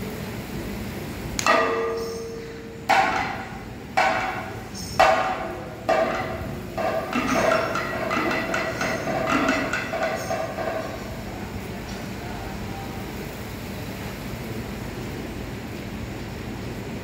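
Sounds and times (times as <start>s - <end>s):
sharp metallic percussion strikes: 1.4s - 11.0s.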